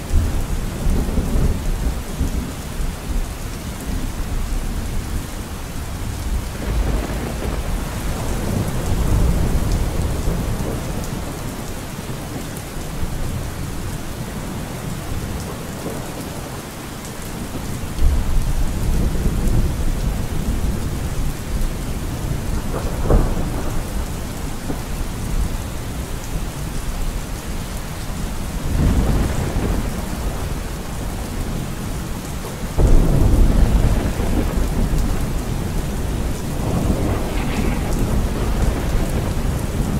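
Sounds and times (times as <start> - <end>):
steady rain falling: 0.0 - 39.9
thunder rolling: 32.7 - 39.9
thunder crack: 32.8 - 39.9.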